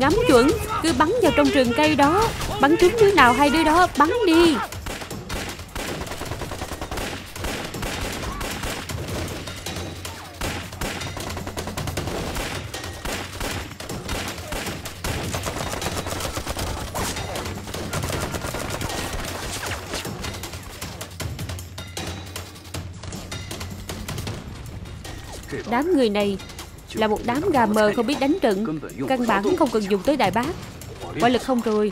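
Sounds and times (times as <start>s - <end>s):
rapid overlapping gunfire: 0.0s - 21.5s.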